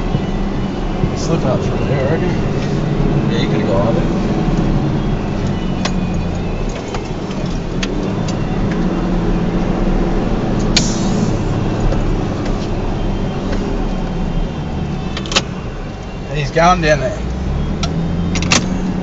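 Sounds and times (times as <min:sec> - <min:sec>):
engine running in low gear: 0:00.0 - 0:16.3, 0:17.0 - 0:19.0.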